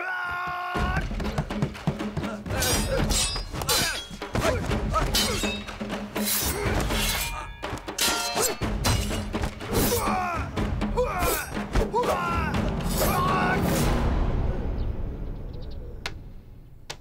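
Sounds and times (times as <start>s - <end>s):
dramatic film music: 0.8s - 16.9s
sword blades clashing: 2.6s - 10.2s.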